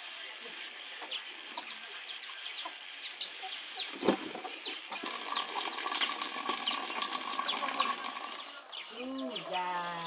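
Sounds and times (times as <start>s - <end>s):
small birds chirping: 0.1s - 10.0s
water running from tap: 4.8s - 8.5s.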